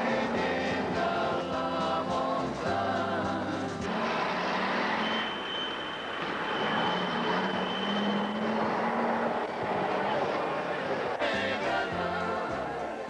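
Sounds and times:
music: 0:00.0 - 0:04.4, 0:11.1 - 0:13.0
traffic noise: 0:00.0 - 0:13.0
thin high whine: 0:03.8 - 0:11.4.

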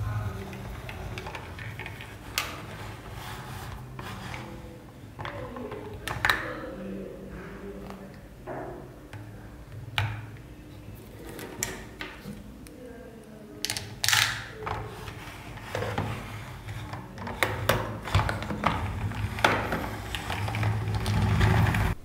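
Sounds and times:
plastic scrape on tabletop: 0:00.3 - 0:05.8, 0:14.7 - 0:22.0.

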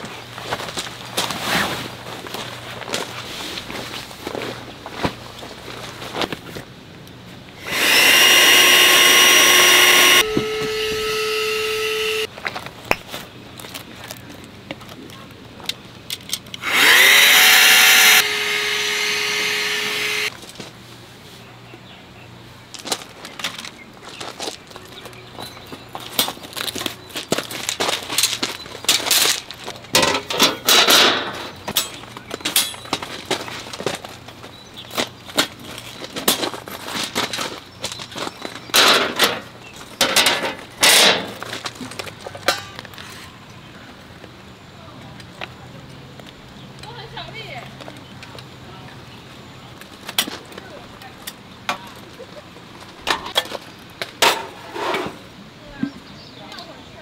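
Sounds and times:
electric air pump whining: 0:07.6 - 0:12.3, 0:16.6 - 0:20.3
table frame scraping: 0:54.6 - 0:55.2.

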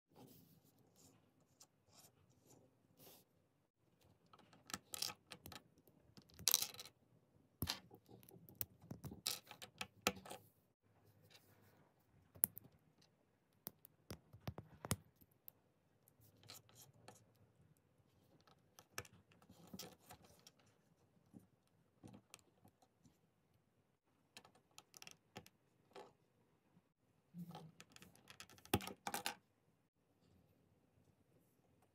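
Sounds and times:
plastic pieces clicking and rattling: 0:06.2 - 0:06.9.

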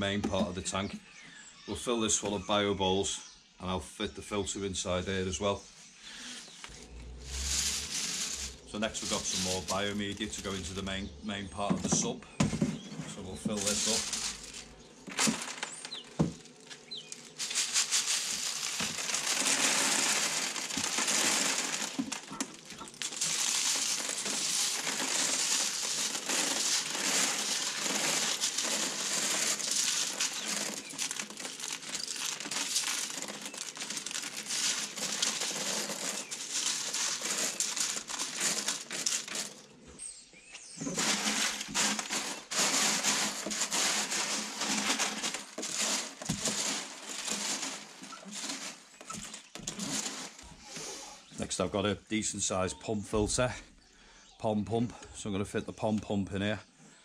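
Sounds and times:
plastic balls pouring into plastic box: 0:06.2 - 0:11.2, 0:13.2 - 0:39.7, 0:40.9 - 0:50.8.

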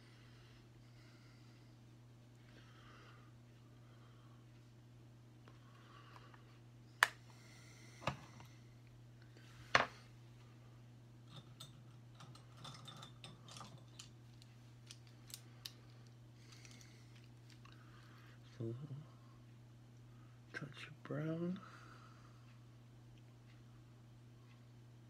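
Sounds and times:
steady low hum: 0:00.0 - 0:25.0
light ticks and rustles: 0:11.4 - 0:18.2.

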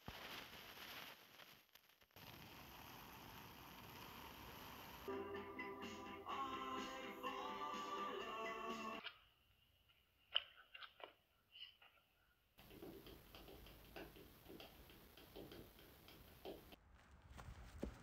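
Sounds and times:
faint hiss: 0:00.0 - 0:05.2
small irregular ticks: 0:12.8 - 0:16.8.

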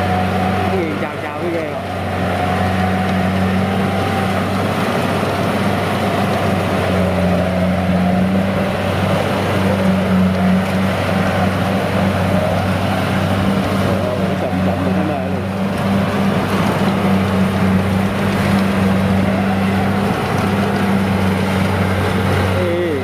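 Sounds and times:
combine harvester engine running: 0:00.0 - 0:23.0.

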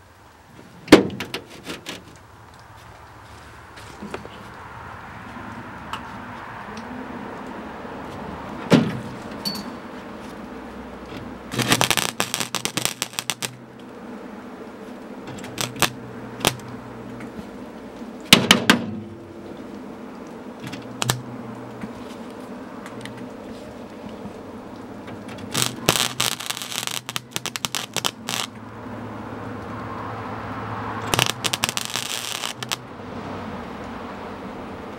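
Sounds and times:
steady low hum: 0:06.6 - 0:34.9
welding arc crackling: 0:10.6 - 0:14.0, 0:15.2 - 0:17.5, 0:20.6 - 0:23.4, 0:24.8 - 0:28.9, 0:30.9 - 0:33.0.

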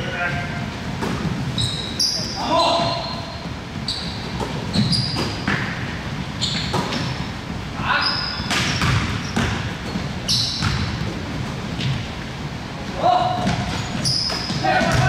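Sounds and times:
low gym hum: 0:00.0 - 0:15.0
sneakers squeaking: 0:00.0 - 0:15.0
basketball bouncing: 0:02.7 - 0:07.3, 0:08.4 - 0:11.2, 0:13.2 - 0:15.0.

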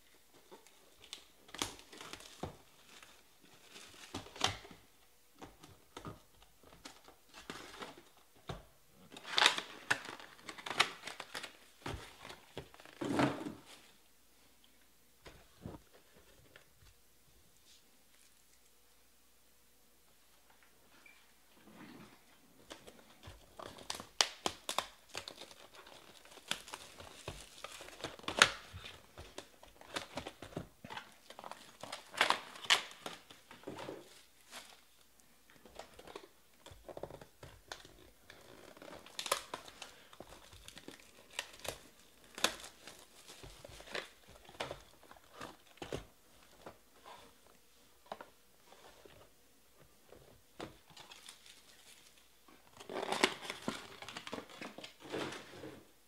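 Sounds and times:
plastic wrapping crinkling and tearing: 0:00.4 - 0:04.8, 0:09.0 - 0:13.9, 0:22.7 - 0:49.2, 0:50.6 - 0:55.5.

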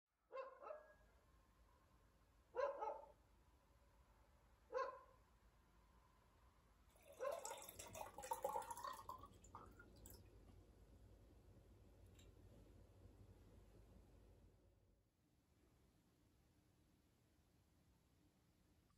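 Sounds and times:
dog barking: 0:00.3 - 0:01.0, 0:02.5 - 0:03.2, 0:04.7 - 0:05.2, 0:07.2 - 0:07.7
water poured into a glass: 0:06.9 - 0:10.3.

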